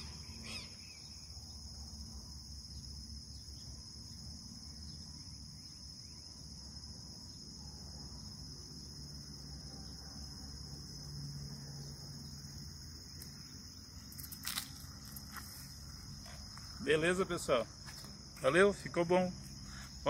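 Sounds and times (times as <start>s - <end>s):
insects chirping in grass: 0.0s - 20.0s.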